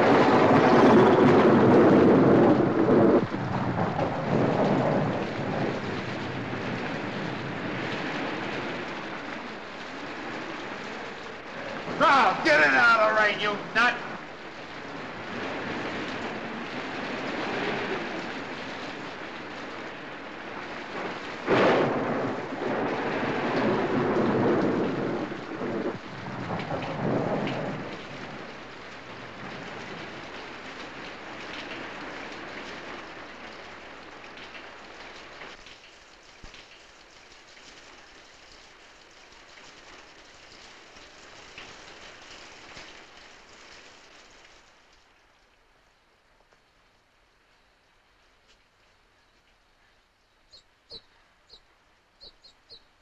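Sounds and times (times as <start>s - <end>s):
thunder crack and rumble: 0.0s - 35.6s
heavy rain pouring: 0.0s - 53.0s.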